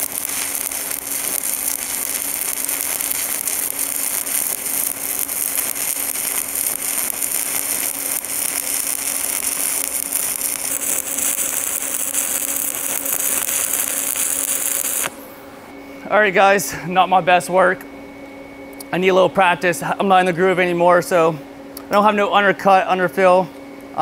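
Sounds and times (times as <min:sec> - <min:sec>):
welding arc crackling: 0:00.0 - 0:15.3
low hum: 0:00.0 - 0:18.9.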